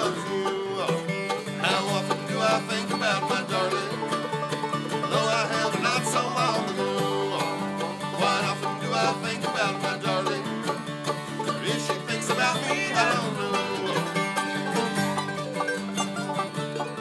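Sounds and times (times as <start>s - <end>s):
person singing: 0.0s - 4.2s, 4.9s - 10.8s, 11.4s - 14.6s
acoustic guitar: 0.0s - 17.0s
banjo: 0.0s - 17.0s
mandolin: 0.0s - 17.0s.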